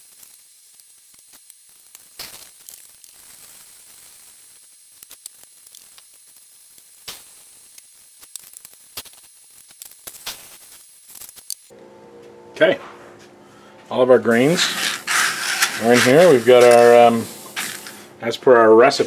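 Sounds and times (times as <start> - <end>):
faint steady hiss: 0.0 - 11.8, 13.9 - 19.0
grain poured into plastic pitcher: 14.3 - 18.2
plastic bag rustling: 14.3 - 18.2.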